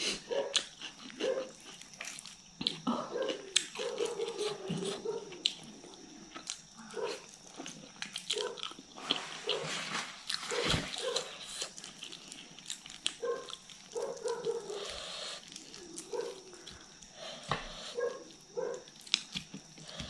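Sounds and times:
wet chewing: 0.3s - 20.0s.

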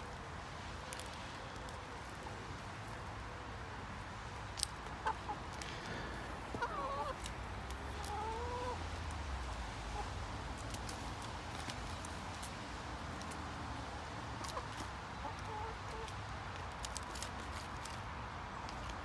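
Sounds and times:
hens clucking: 4.9s - 8.9s, 14.4s - 16.1s.

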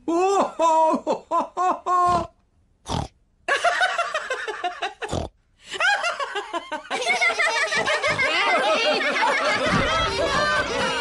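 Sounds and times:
cartoon pig snorting: 2.1s - 3.2s, 5.0s - 5.4s
cartoon laughter: 5.9s - 11.0s.

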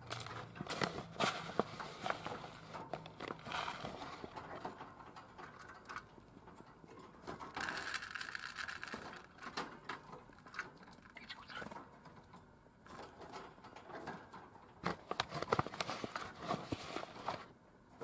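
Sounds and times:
rustling: 0.0s - 12.0s, 14.8s - 17.6s
bird seed rattling: 7.3s - 11.8s.

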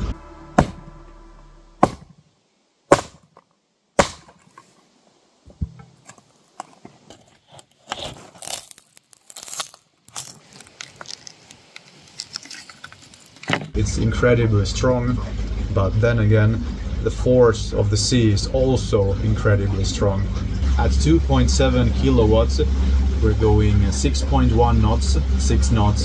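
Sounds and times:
sledgehammer strikes: 0.0s - 1.0s, 1.8s - 2.2s, 2.9s - 3.4s, 4.0s - 4.6s
cracking and crunching: 5.9s - 13.8s.

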